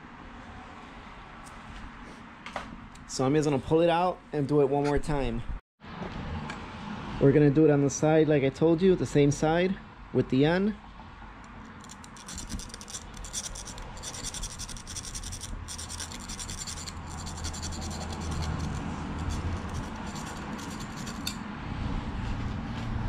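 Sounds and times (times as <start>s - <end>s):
hand file scraping metal ring: 11.5s - 21.4s.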